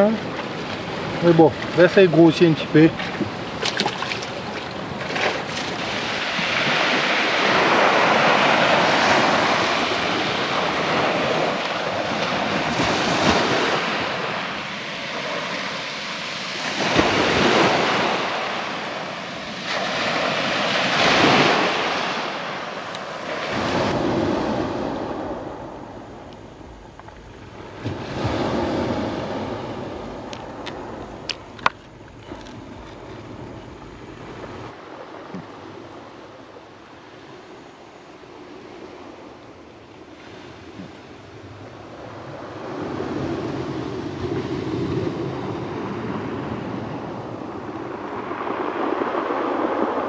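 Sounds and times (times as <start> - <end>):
surf washing onto rocky shore: 0.0 - 25.5.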